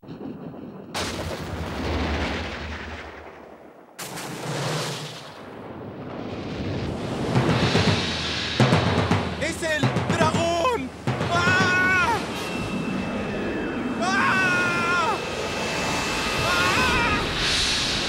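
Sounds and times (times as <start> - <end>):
thunder clap and rumble: 0.0 - 13.2.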